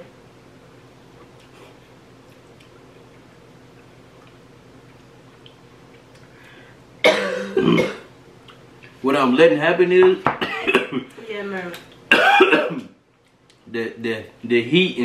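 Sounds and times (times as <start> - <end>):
chewing and eating clicks: 2.2 - 6.3
person coughing: 7.0 - 8.1, 10.4 - 11.1, 12.1 - 12.9.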